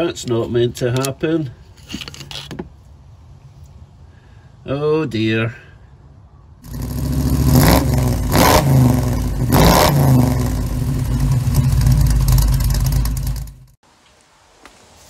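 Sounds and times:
engine starter cranking: 10.7 - 13.8.

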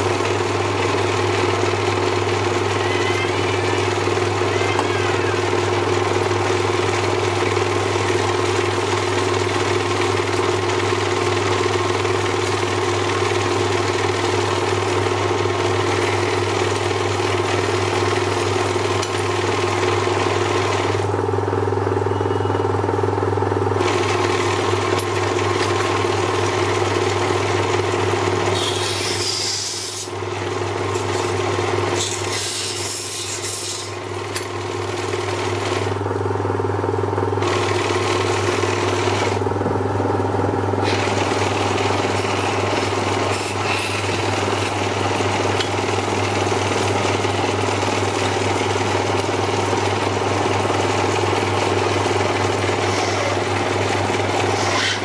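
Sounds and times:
lathe motor humming: 0.0 - 55.0
cutting tool scraping rubber: 28.6 - 30.1, 52.8 - 53.4, 54.5 - 55.0.

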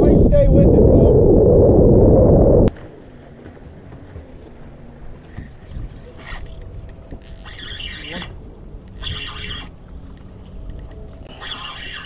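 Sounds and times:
wind buffeting microphone: 0.0 - 2.8.

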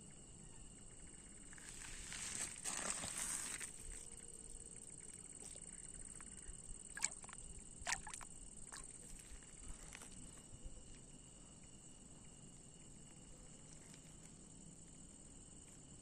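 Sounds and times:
water splashes and drips: 6.9 - 9.1.

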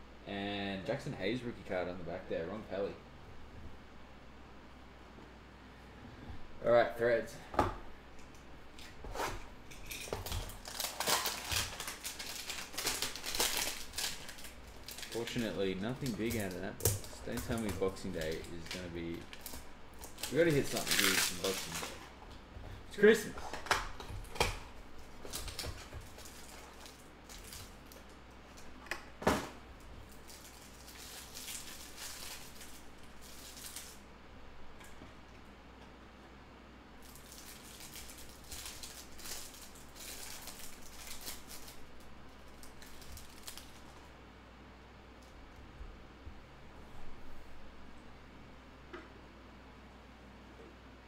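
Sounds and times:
plastic wrap crinkling: 8.7 - 22.2, 22.9 - 28.8, 29.8 - 34.1, 37.0 - 44.1.

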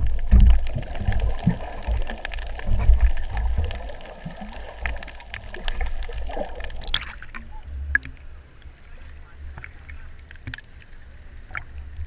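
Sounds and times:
water sloshing and bubbling underwater: 0.0 - 12.0
sharp splash: 5.6 - 7.4.

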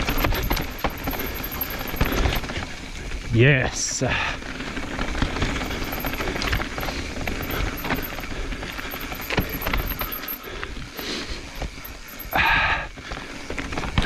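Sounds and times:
chain and frame rattling: 0.0 - 2.8, 5.0 - 12.8
bike tyres rolling over dirt: 0.0 - 14.0.

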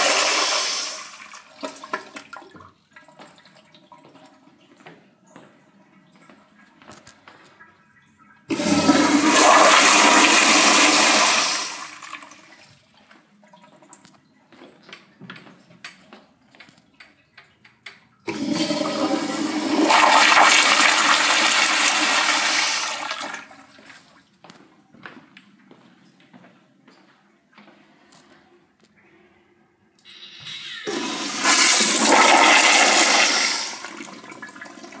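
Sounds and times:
toilet flushing: 0.0 - 4.5, 8.5 - 12.7, 18.3 - 24.0, 30.6 - 35.0.

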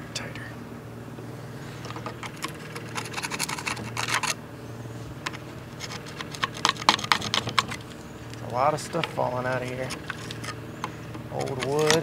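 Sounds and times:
metal tool scraping wood and rust: 1.6 - 4.4, 5.2 - 12.0.

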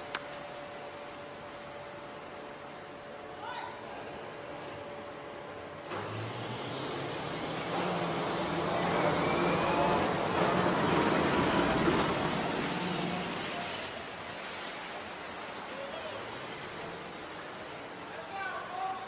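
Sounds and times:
water rushing and churning: 0.0 - 19.0
diesel engine running: 5.9 - 13.3.

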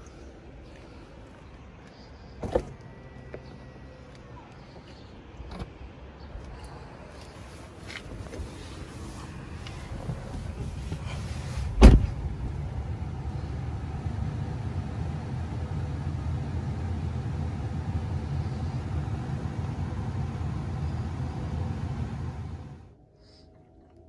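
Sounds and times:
low rumble: 9.2 - 24.0
car door thump: 11.7 - 12.4.

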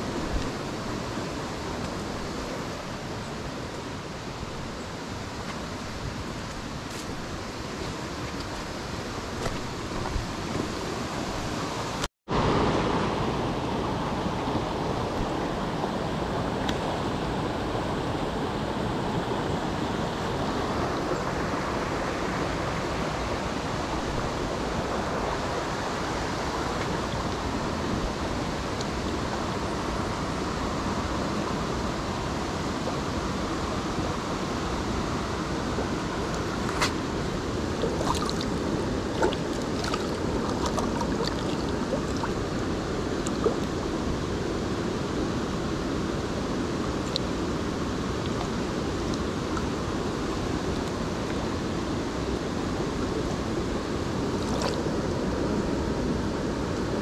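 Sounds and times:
stream water rushing: 0.0 - 57.0.

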